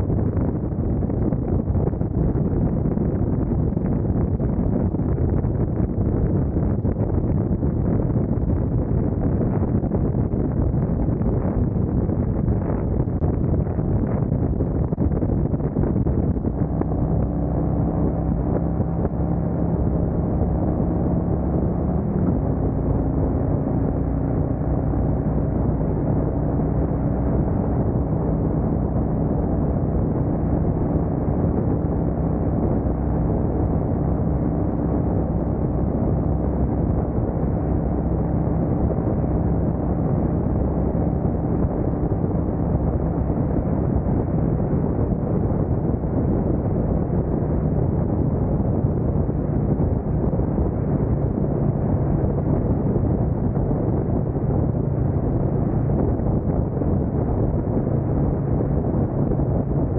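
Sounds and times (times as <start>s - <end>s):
wind noise on microphone: 0.0s - 59.9s.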